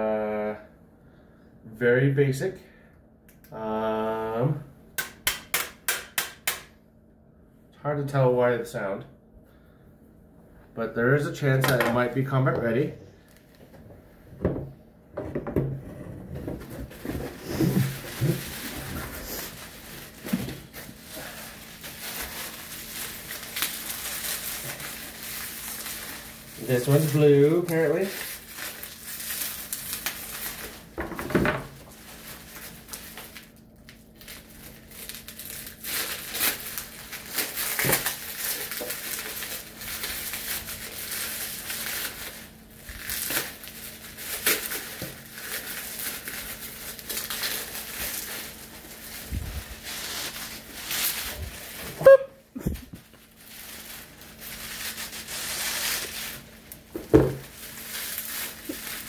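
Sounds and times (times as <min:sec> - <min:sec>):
faint steady hum: 0:00.0 - 0:59.0
loud sharp snap: 0:05.0 - 0:06.8
bubble wrap crinkling: 0:13.2 - 0:13.8, 0:16.2 - 0:59.0.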